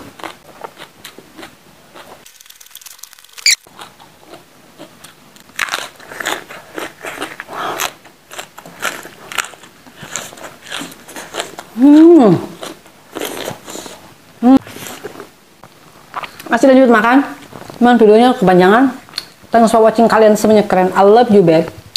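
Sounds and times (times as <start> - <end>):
bell pepper crunching when bitten: 0.1 - 11.8.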